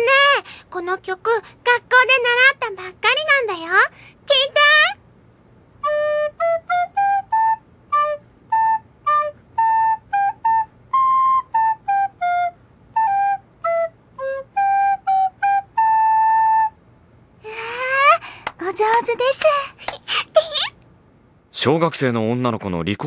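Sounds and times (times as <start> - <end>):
recorder playing a simple tune: 5.8 - 16.8.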